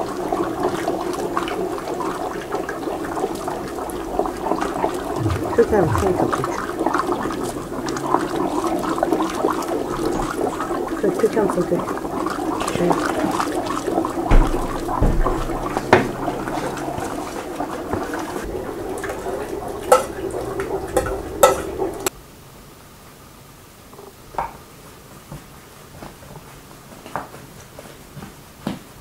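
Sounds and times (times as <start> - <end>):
liquid boiling and bubbling: 0.0 - 22.1
wooden spoon knocking pot: 19.2 - 22.1.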